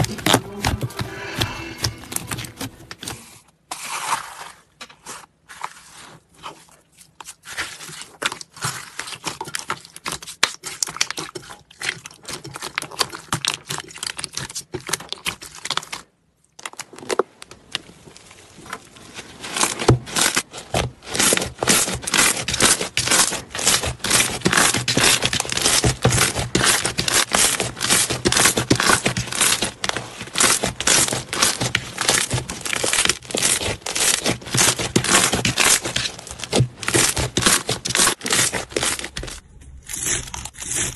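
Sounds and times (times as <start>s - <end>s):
hands squishing slime: 19.5s - 40.9s.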